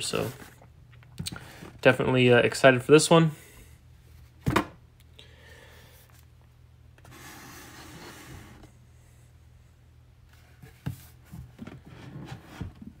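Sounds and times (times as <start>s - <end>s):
faint rubbing and sliding: 7.0s - 8.8s.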